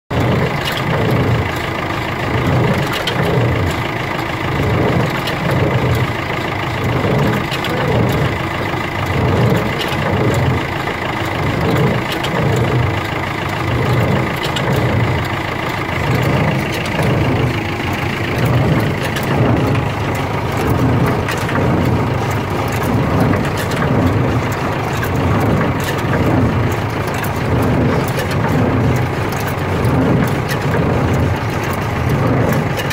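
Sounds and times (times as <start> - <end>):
tractor engine running: 0.0 - 32.9
baler mechanism beating: 6.8 - 32.9.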